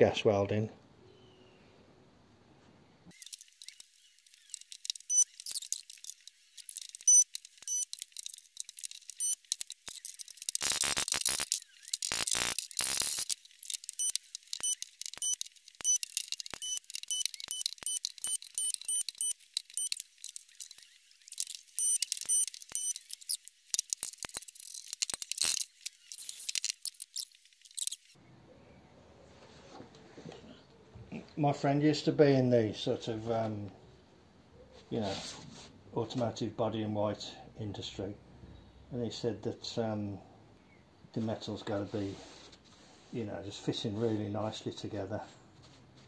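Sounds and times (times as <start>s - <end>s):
welding arc crackling: 3.1s - 28.2s.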